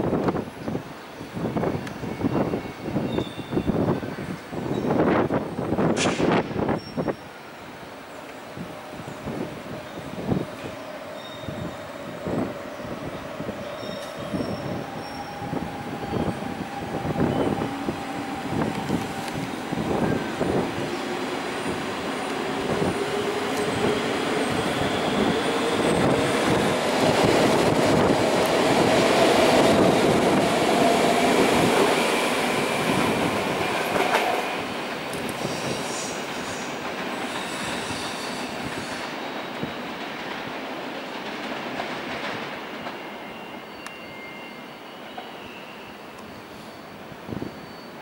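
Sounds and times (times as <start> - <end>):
wheels rumbling on rail: 8.2 - 48.0
high wheel squeals: 9.8 - 16.4, 24.4 - 26.6, 35.4 - 39.9, 43.0 - 48.0.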